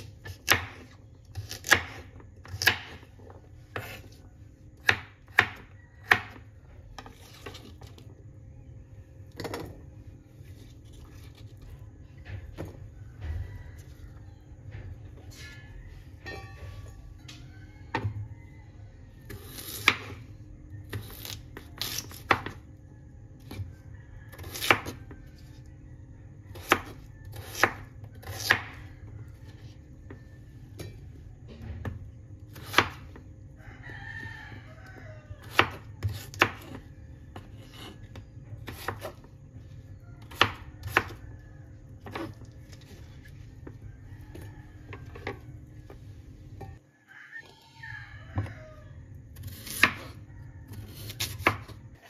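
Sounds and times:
knife chopping on wooden board: 0.2s - 3.1s, 4.8s - 6.4s, 26.5s - 28.8s, 35.4s - 36.8s, 38.6s - 39.2s, 49.4s - 51.8s.

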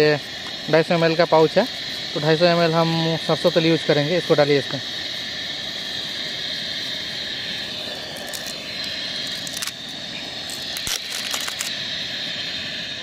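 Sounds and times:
burner rushing: 0.0s - 13.0s
high insect chirr: 0.0s - 13.0s.

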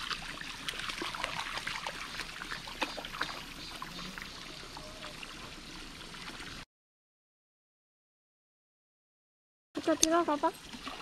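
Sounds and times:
water splashing and trickling: 0.0s - 6.7s, 9.8s - 11.0s.

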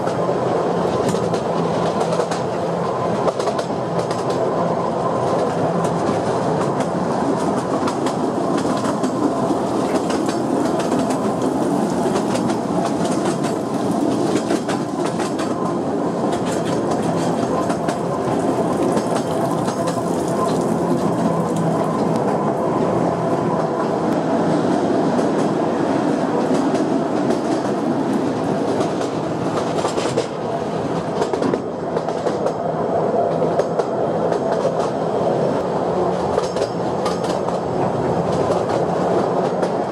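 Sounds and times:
train wheels rumbling on rails: 0.0s - 39.9s
rail joints clattering: 5.3s - 22.5s, 36.0s - 39.9s.

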